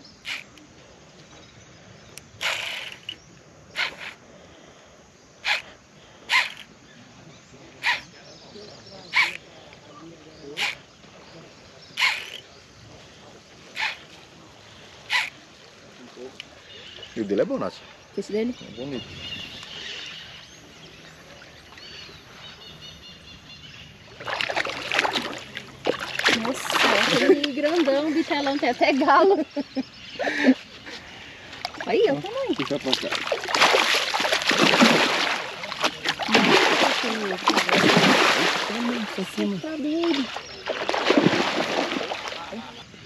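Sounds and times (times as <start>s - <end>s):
fishing reel drag buzzing: 0.2s - 0.6s, 2.4s - 4.2s, 6.3s - 6.7s, 12.0s - 12.4s
faint bird chirps: 5.4s - 24.4s.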